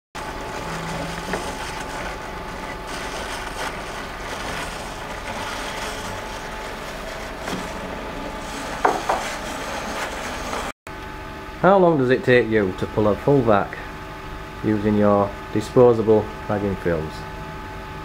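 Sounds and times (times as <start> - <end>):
steady mechanical hum: 0.2 - 18.0.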